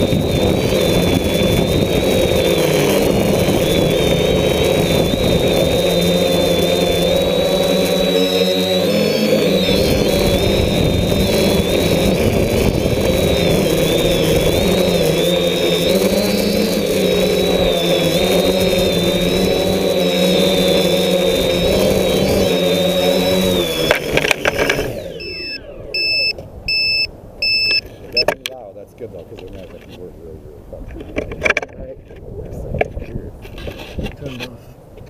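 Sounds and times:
wind buffeting microphone: 0.0 - 8.2, 9.5 - 28.1, 30.0 - 35.0
drone motors whining: 0.0 - 28.4
short high beeps: 25.2 - 28.3.

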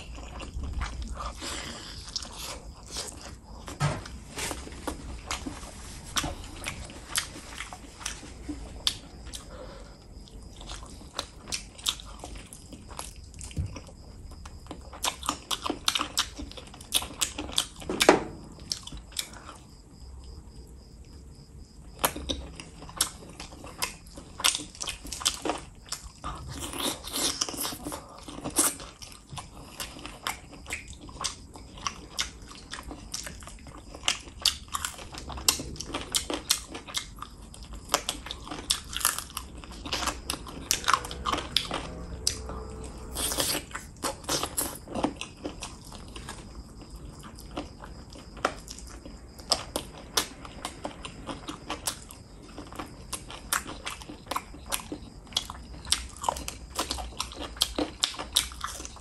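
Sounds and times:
person chewing meat: 0.0 - 3.8, 4.5 - 17.9, 18.5 - 59.0.

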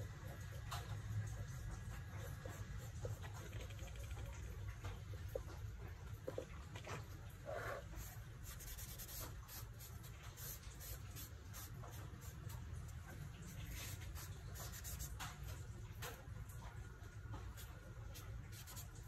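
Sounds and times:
charcoal scratching on paper: 7.5 - 15.5, 17.5 - 19.0.

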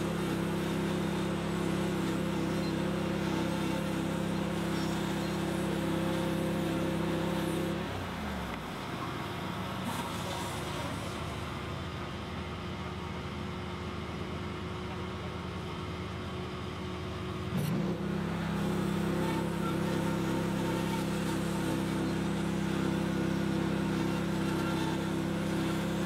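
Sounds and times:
sawmill engine running: 0.0 - 26.0.

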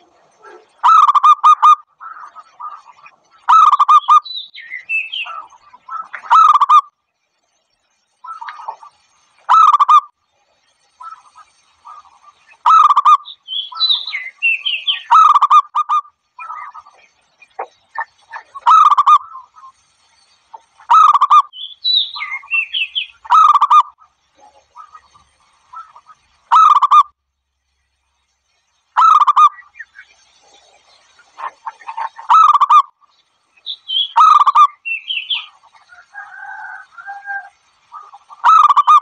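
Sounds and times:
dove cooing: 0.0 - 4.2.

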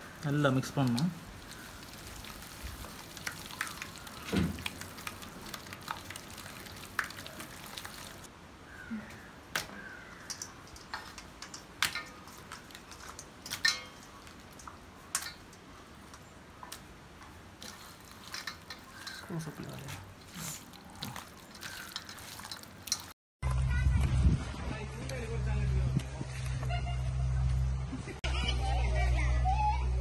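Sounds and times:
wet squishing of hands mixing: 0.0 - 8.3, 9.8 - 23.2.

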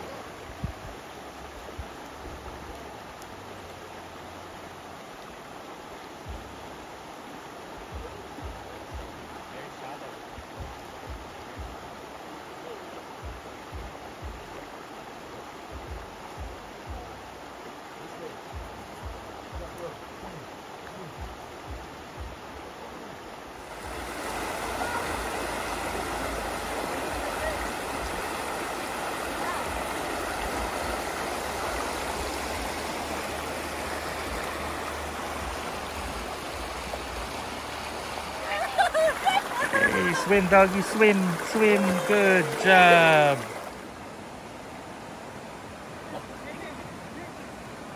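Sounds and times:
creek water rushing over rocks: 0.0 - 47.9
low thumping beat: 6.2 - 6.7, 7.8 - 9.3, 10.3 - 11.9, 13.2 - 14.7, 15.7 - 17.4, 18.5 - 19.9, 21.0 - 22.6.

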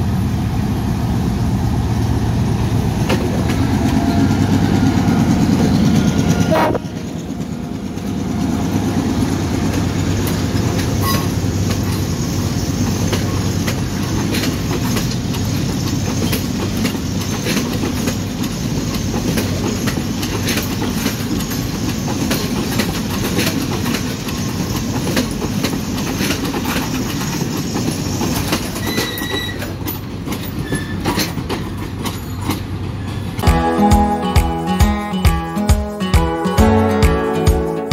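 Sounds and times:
train carriages rumbling past: 0.0 - 35.2
wheels clicking over rail joints: 2.7 - 33.4.

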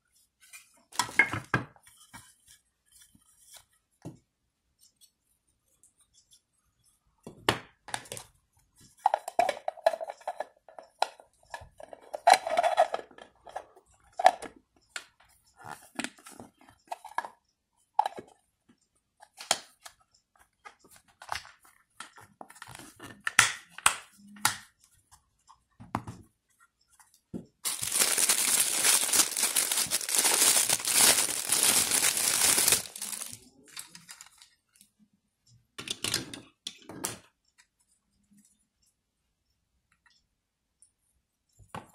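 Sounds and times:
plastic parts clicking and clacking: 7.8 - 17.4, 27.6 - 34.5, 35.8 - 37.7
plastic packaging crinkling: 27.6 - 34.4.

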